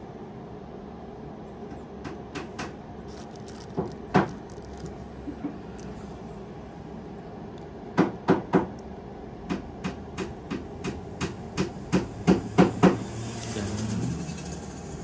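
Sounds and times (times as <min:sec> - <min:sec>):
low steady hum: 0:02.7 - 0:08.0.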